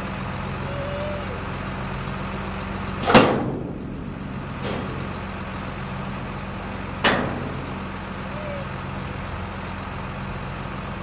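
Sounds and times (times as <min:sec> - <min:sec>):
farm machinery engine running: 0:00.0 - 0:11.0.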